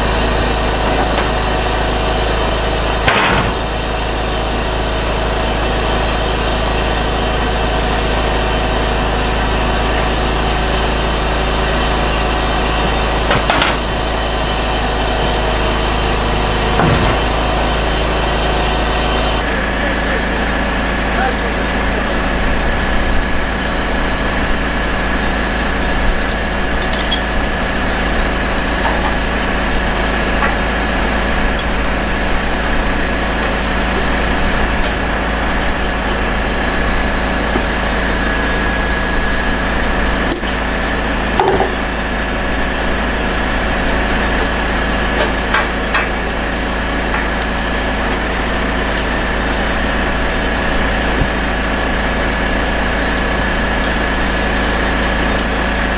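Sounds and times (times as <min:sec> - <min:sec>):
diesel engine idling: 0:00.0 - 0:55.9
engine whine: 0:00.0 - 0:55.9
metal chains clinking: 0:40.3 - 0:41.6, 0:47.8 - 0:49.4, 0:53.8 - 0:55.6.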